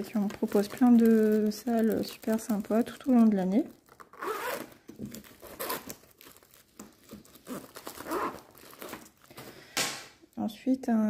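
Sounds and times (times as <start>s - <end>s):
plastic pouch crinkling: 0.0s - 9.6s.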